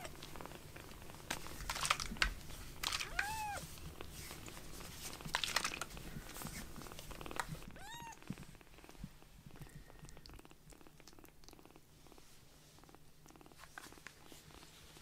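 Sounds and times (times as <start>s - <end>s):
soft rustling on blanket: 0.1s - 10.9s, 11.6s - 15.0s
kitten mewing: 3.0s - 3.6s, 7.7s - 8.2s.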